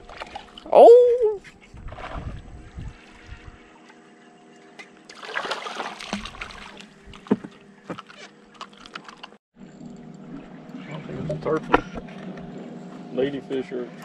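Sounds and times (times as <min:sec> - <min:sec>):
fish splashing at water surface: 0:05.1 - 0:07.3.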